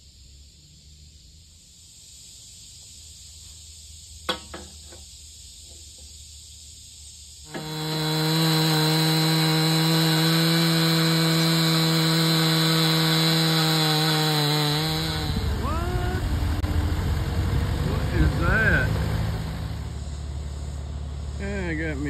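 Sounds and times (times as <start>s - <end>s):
chainsaw ripping a log: 7.5s - 19.9s
low rough engine rumble: 14.7s - 22.0s.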